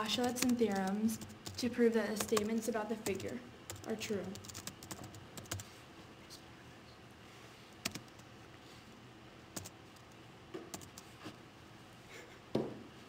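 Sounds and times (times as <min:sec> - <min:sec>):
keyboard keystrokes: 0:07.8 - 0:08.2, 0:10.7 - 0:11.1.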